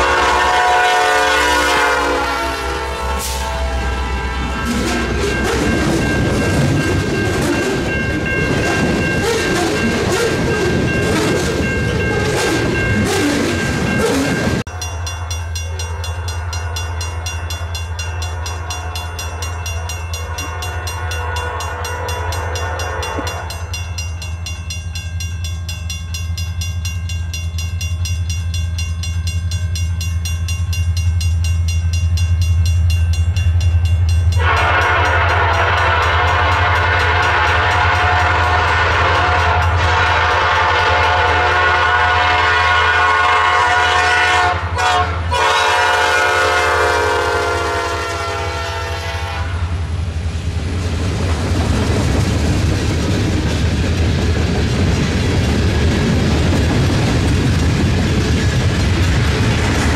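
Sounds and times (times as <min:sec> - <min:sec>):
train horn chord: 0:00.0 - 0:05.8, 0:14.6 - 0:23.8, 0:34.3 - 0:49.9
diesel locomotive drone: 0:00.0 - 0:59.9
freight train wheels rumbling: 0:00.0 - 0:59.9.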